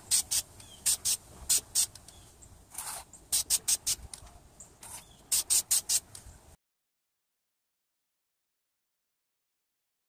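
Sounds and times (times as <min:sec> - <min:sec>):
aerosol can spraying: 0:00.0 - 0:02.0, 0:02.8 - 0:04.1, 0:04.8 - 0:06.1.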